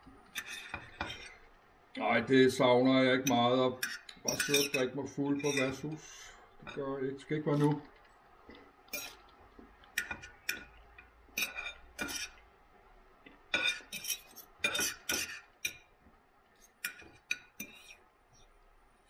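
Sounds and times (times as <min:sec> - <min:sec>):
knife and fork scraping on plate: 0:00.3 - 0:01.4, 0:03.3 - 0:05.9, 0:08.9 - 0:09.2, 0:11.4 - 0:12.4, 0:13.5 - 0:15.8, 0:16.6 - 0:18.0.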